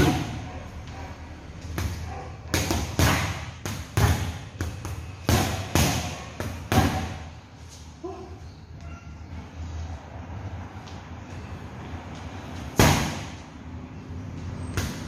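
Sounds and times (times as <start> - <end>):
gloves punching heavy bags: 2.6 - 7.2.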